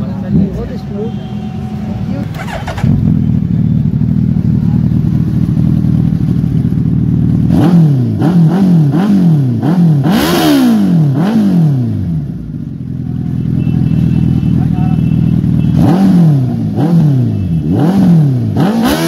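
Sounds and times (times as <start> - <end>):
motorcycle engine idling: 0.0 - 7.5, 12.2 - 15.8
motorcycle engine revving: 0.0 - 19.0.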